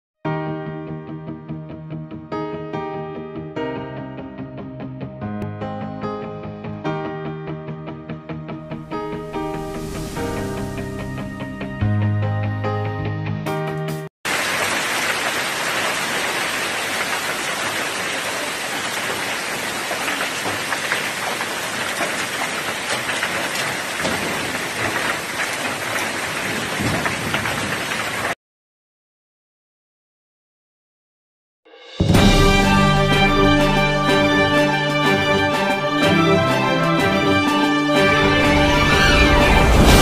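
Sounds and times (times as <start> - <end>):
hail pelting down: 14.3 - 28.4
news theme music: 32.0 - 40.0.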